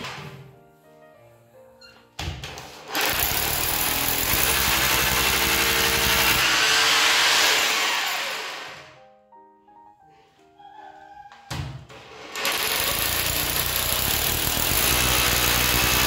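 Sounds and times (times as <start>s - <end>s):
hammer drill boring into tile: 2.9s - 8.9s, 12.2s - 16.0s.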